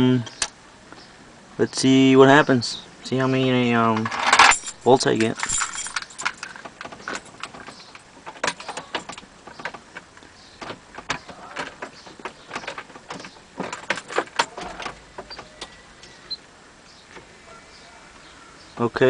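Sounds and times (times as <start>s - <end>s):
light clicks and knocks: 3.9s - 16.2s
keys jangling: 4.0s - 9.6s.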